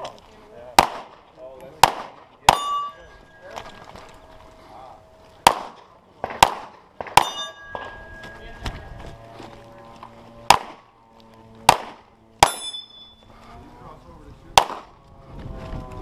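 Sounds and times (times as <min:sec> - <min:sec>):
pistol shots: 0:00.8 - 0:02.9, 0:05.4 - 0:08.0, 0:10.5 - 0:10.9, 0:11.6 - 0:12.8, 0:14.6 - 0:14.9
steel targets ringing: 0:02.4 - 0:10.9, 0:11.6 - 0:13.3.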